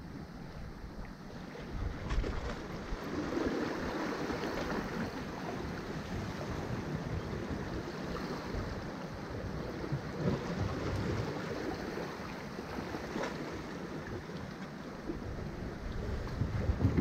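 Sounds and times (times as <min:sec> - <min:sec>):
wind buffeting microphone: 0:01.5 - 0:12.0, 0:15.0 - 0:17.0.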